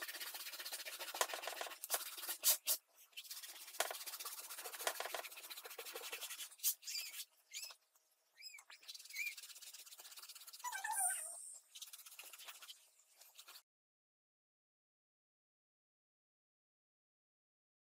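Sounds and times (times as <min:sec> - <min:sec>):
scratchy rubbing on paper: 0:00.0 - 0:07.3, 0:08.7 - 0:13.6
short high squeaks: 0:10.6 - 0:11.6.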